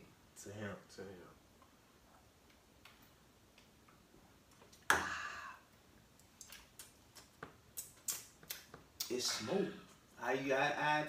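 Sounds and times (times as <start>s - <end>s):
person exhaling loudly: 4.9s - 5.7s.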